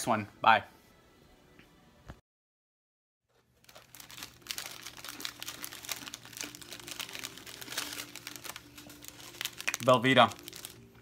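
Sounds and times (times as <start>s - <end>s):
packaging crinkling: 3.3s - 11.0s.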